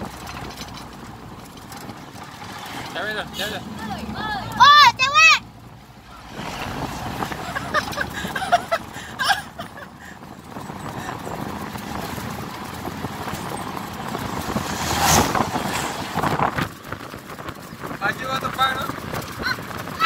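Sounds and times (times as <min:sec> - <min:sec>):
wind and road noise: 0:00.0 - 0:20.0
voices: 0:02.9 - 0:06.4.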